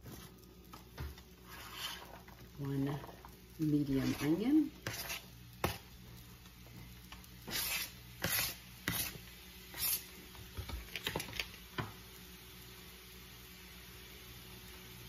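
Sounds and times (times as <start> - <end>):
knife scraping plastic cutting board: 4.0 - 5.8, 7.4 - 10.0.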